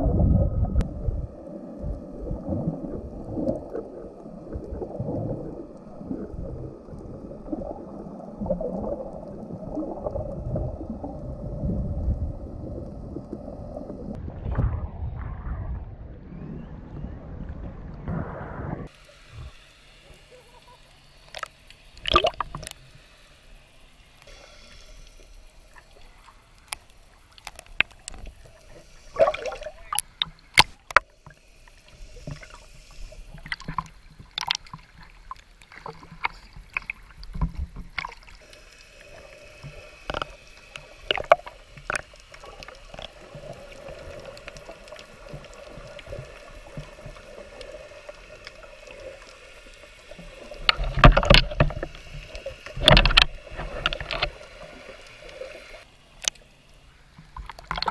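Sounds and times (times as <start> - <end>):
faint steady hum: 0.0 - 57.9
muffled underwater sound: 0.0 - 57.9
water splashing: 1.9 - 22.8, 25.6 - 56.4, 57.1 - 57.9
sharp underwater clicks and pops: 21.2 - 22.8, 26.6 - 31.4, 32.2 - 39.0, 39.6 - 56.5, 57.2 - 57.9.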